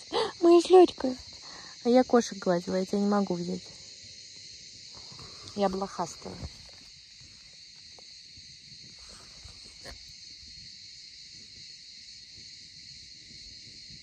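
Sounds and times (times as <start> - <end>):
insects chirring: 0.0 - 14.0.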